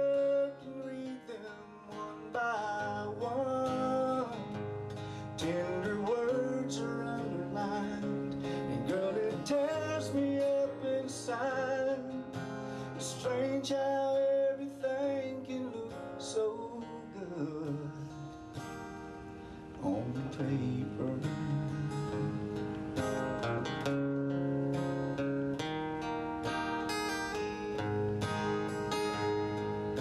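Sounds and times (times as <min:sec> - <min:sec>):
man singing: 0:00.0 - 0:18.5, 0:19.8 - 0:23.5
acoustic guitar strumming: 0:00.0 - 0:30.0.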